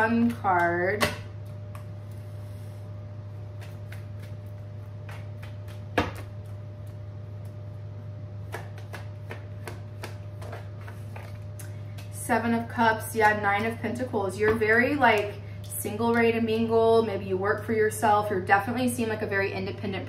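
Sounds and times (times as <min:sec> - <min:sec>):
cards being shuffled: 0:08.5 - 0:12.2.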